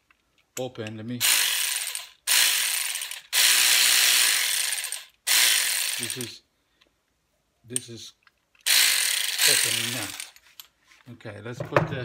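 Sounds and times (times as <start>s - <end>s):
cordless ratchet wrench whirring: 1.2s - 6.4s, 8.6s - 10.4s.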